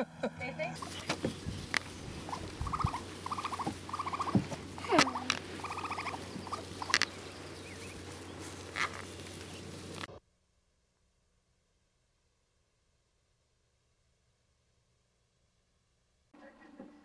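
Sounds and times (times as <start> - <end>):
baby raccoons chittering: 0.8 - 10.1.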